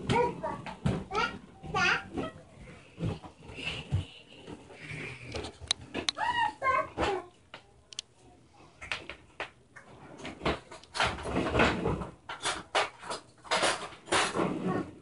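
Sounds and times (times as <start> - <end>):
plastic baby walker rattling: 10.0 - 14.9.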